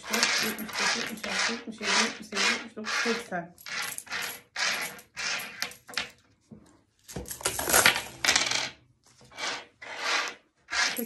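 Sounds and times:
coins clinking on wooden table: 0.0s - 1.3s, 3.6s - 6.2s, 7.5s - 8.8s.

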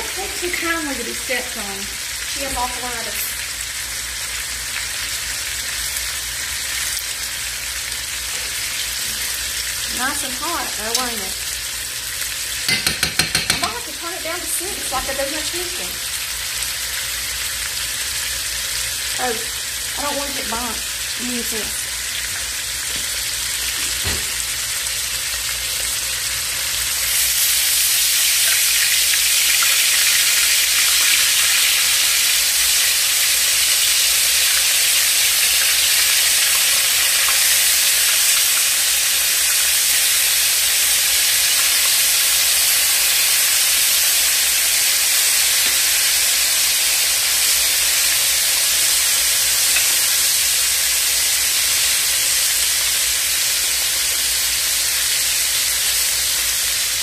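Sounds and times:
fish sizzling in hot oil: 0.0s - 57.0s.

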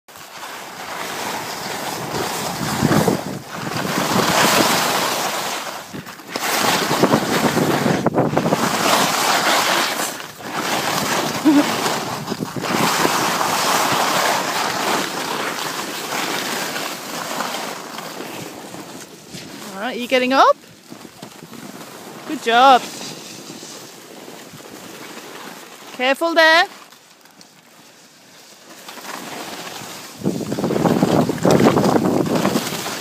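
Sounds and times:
skis scraping over snow: 0.1s - 33.0s
wind on microphone: 1.6s - 14.8s, 30.1s - 33.0s.

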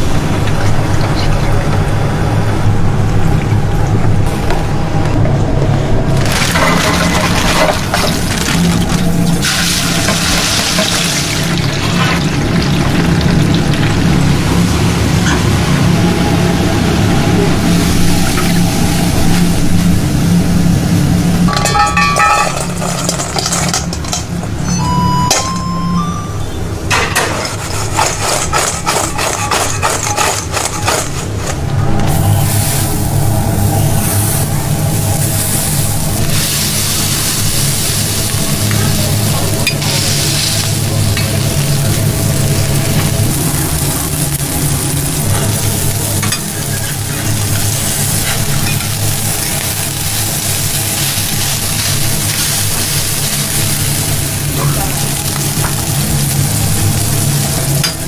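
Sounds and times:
low steady hum: 0.0s - 58.0s
burger patties sizzling on griddle: 6.3s - 15.1s, 32.1s - 58.0s
short steady tones: 24.6s - 26.8s
metal spatula scraping steel: 27.2s - 31.6s.

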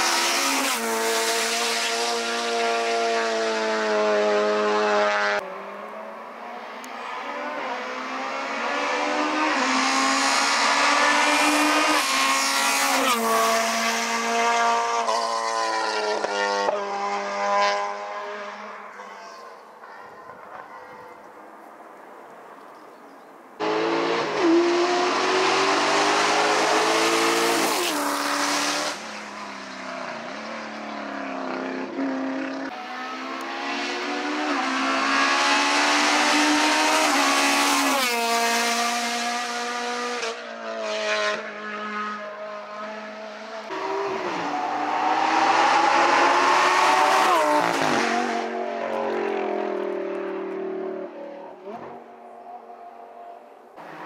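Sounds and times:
race cars accelerating past: 0.0s - 19.1s, 23.6s - 54.0s.

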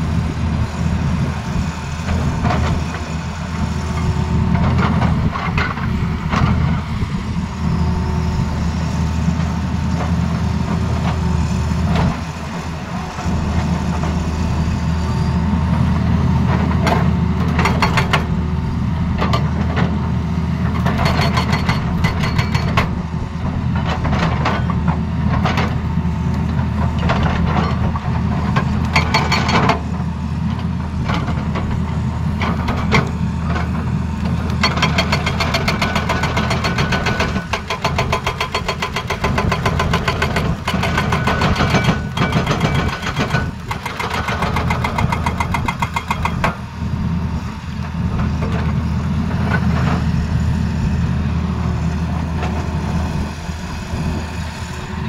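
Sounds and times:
excavator diesel engine: 0.0s - 55.0s
hydraulic breaker hammering rock: 16.6s - 18.4s, 20.7s - 25.8s, 27.0s - 29.9s, 34.5s - 46.7s.

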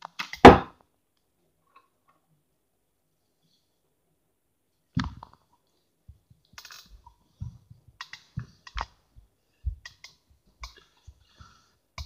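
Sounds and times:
fingers tapping on phone microphone: 9.6s - 10.9s.

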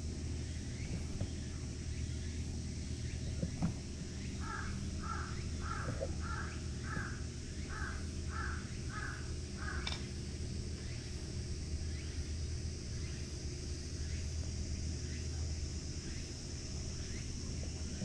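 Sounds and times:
low steady hum: 0.0s - 18.0s
bird calling: 3.0s - 10.1s.

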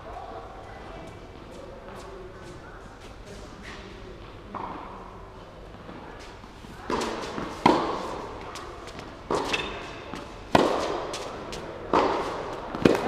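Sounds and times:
racket hitting tennis ball: 6.8s - 13.0s.

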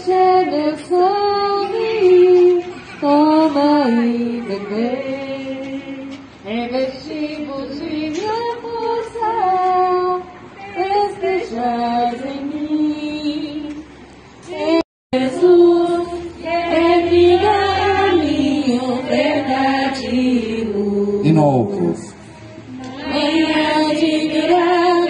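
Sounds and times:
women singing a hymn: 0.0s - 21.3s, 22.4s - 25.0s.

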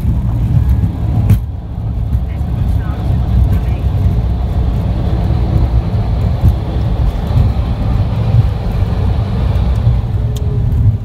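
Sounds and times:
aircraft wheels rumbling on runway: 0.0s - 11.0s
jet engines running: 0.0s - 11.0s.

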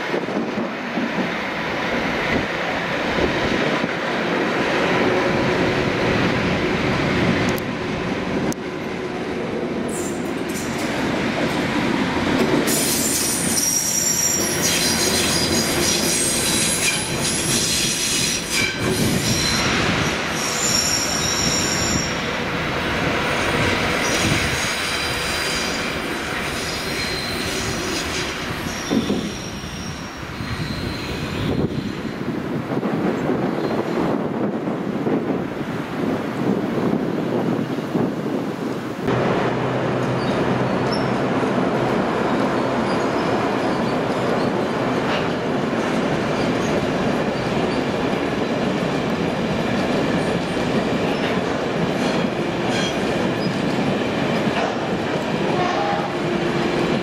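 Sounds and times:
diesel locomotive engine: 0.0s - 57.0s
high-pitched wheel squeal: 12.7s - 22.2s, 26.6s - 32.0s.

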